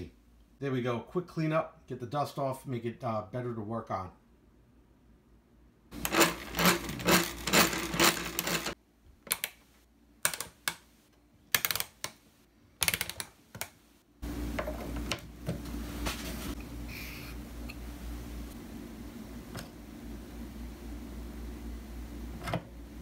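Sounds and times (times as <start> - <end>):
knobs and switches clicking: 6.0 - 12.2, 12.8 - 13.8.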